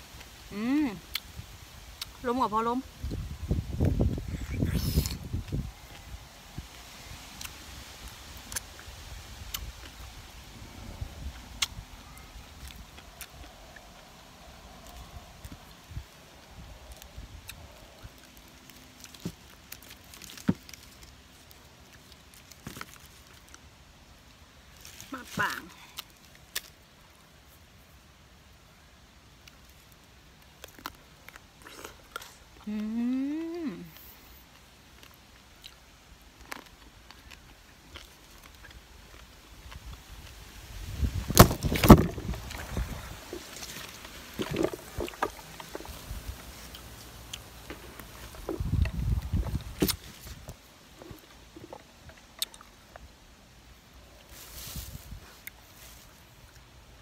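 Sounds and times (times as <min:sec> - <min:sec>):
leaves rustling: 0:00.0 - 0:57.0
person chewing crunchy fruit: 0:01.0 - 0:02.2, 0:03.0 - 0:27.7, 0:29.3 - 0:56.9
fruit pulled off stem: 0:03.0 - 0:06.1, 0:11.3 - 0:11.8, 0:24.7 - 0:26.8, 0:40.9 - 0:50.6.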